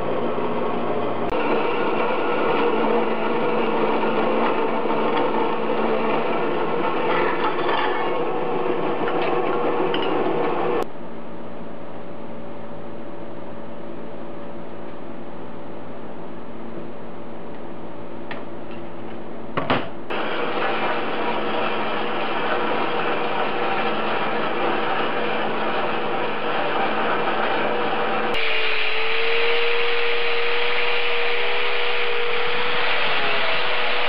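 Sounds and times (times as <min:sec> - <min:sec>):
angle grinder grinding: 0:01.3 - 0:10.8, 0:20.1 - 0:34.0
bandsaw cutting metal: 0:01.3 - 0:10.8, 0:20.1 - 0:34.0.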